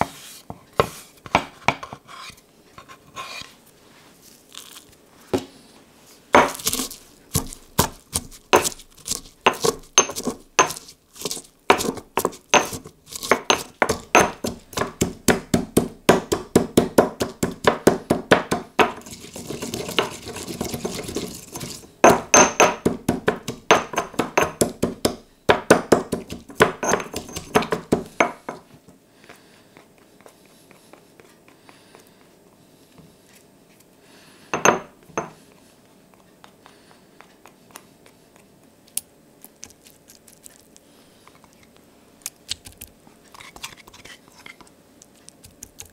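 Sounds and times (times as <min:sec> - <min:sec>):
pestle grinding in mortar: 0:06.4 - 0:28.6
stone pestle pounding in mortar: 0:06.4 - 0:28.6.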